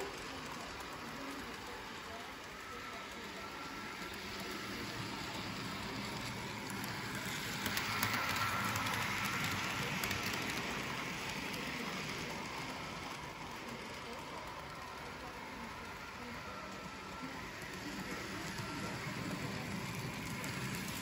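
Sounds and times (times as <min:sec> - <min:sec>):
model train whirring on track: 0:00.0 - 0:21.0.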